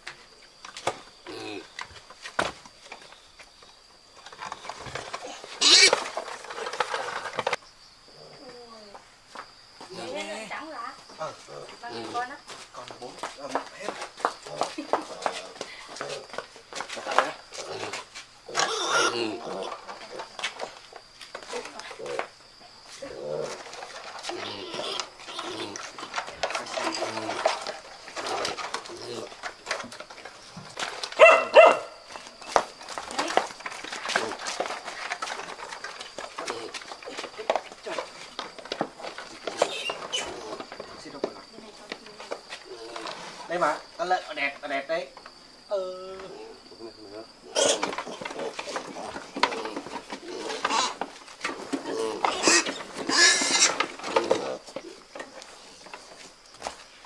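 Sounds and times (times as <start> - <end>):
knocks and scuffling: 0.0 - 7.6, 8.4 - 18.7, 19.3 - 46.4, 47.0 - 57.0
piglets grunting: 5.2 - 6.0, 17.6 - 19.9, 24.3 - 29.5, 47.4 - 51.1, 51.7 - 54.7
piglets squealing: 5.6 - 6.0, 18.5 - 19.4, 52.0 - 53.8.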